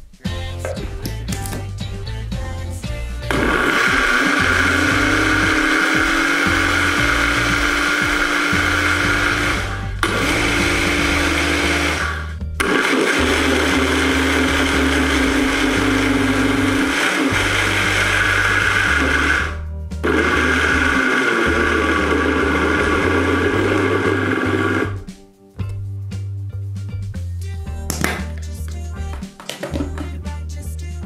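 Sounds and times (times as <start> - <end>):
blender motor running: 3.3 - 25.0.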